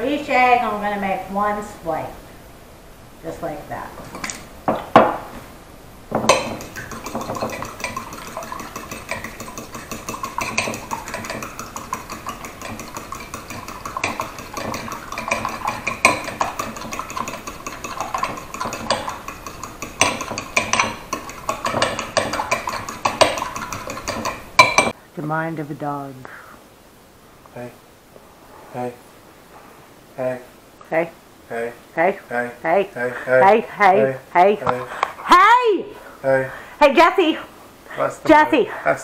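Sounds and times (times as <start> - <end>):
fork knocking bowl: 6.1 - 25.0
fork beating eggs in bowl: 6.2 - 25.0.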